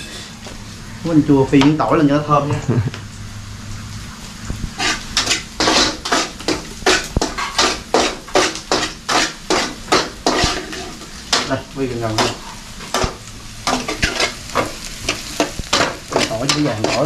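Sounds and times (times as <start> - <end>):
metal spatula scraping pan: 4.8 - 11.6, 12.2 - 17.0.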